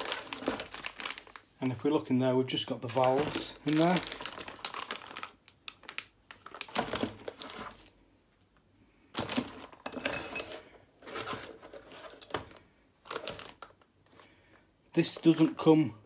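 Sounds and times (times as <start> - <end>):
plastic bag rustling: 0.0 - 1.9, 2.5 - 8.0, 9.1 - 15.7
brass fittings clinking: 9.8 - 10.6.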